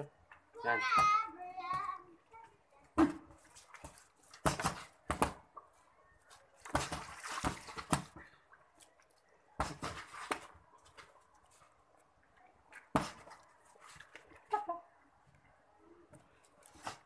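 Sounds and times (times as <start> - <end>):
boxing gloves thudding: 4.4 - 5.4.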